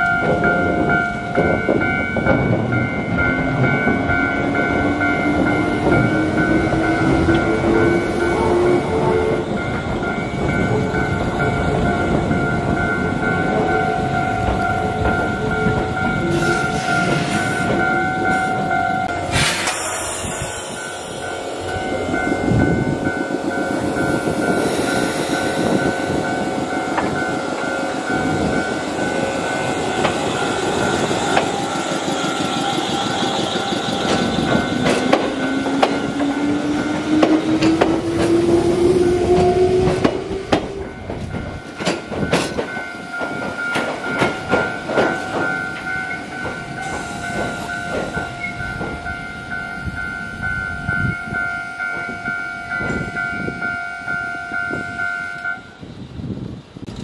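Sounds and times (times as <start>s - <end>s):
level crossing warning bell: 0.0s - 19.4s, 20.1s - 56.1s
wheels clacking over rail joints: 21.4s - 49.3s.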